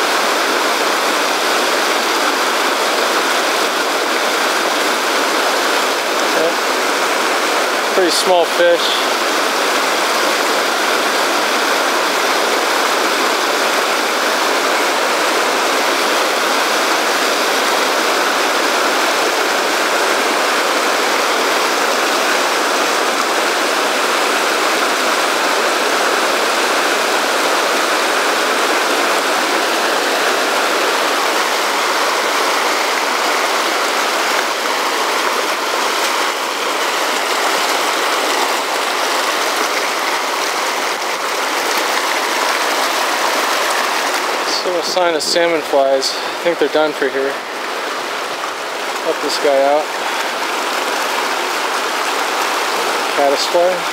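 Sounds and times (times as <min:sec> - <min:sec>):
river rushing over boulders: 0:00.0 - 0:53.9.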